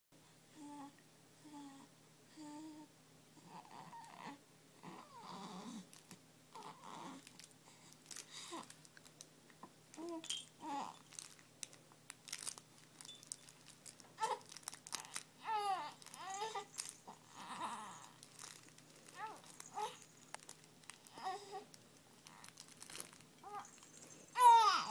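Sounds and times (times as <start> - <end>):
baby cooing and babbling: 0.6 - 5.9, 6.5 - 7.2, 10.0 - 11.0, 14.2 - 18.5, 19.1 - 20.1, 21.0 - 21.7, 22.3 - 22.6, 23.4 - 24.9
rustling of toys and clothing: 5.7 - 9.3, 9.9 - 24.9
baby squealing: 23.4 - 24.9.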